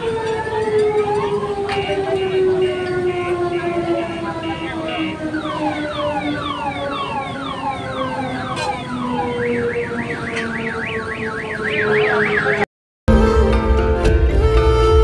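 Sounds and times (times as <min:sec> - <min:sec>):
electronic siren: 0:00.0 - 0:13.4
horn-like tone: 0:01.2 - 0:07.7, 0:08.6 - 0:15.0.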